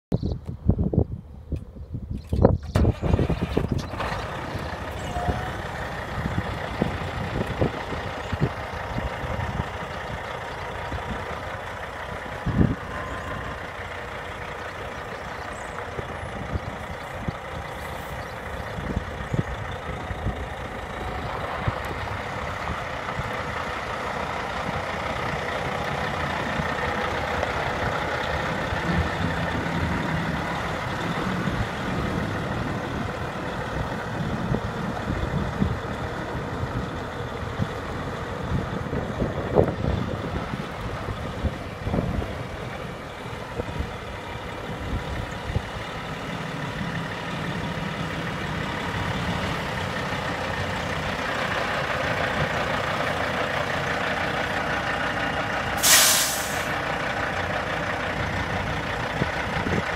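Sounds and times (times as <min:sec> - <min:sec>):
diesel truck engine idling: 0:02.2 - 0:59.9.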